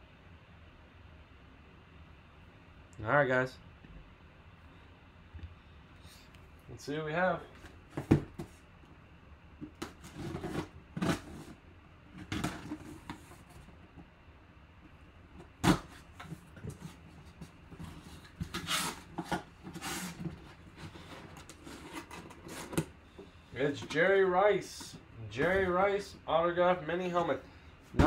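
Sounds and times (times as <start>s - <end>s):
cardboard scraping and rustling: 9.6s - 13.9s, 15.4s - 22.9s
knife slitting packing tape: 18.4s - 20.2s.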